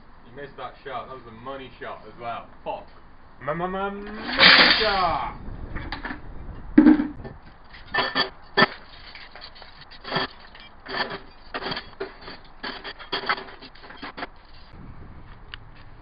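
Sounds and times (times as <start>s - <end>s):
metal cutlery clattering: 4.1s - 5.0s, 7.7s - 14.7s.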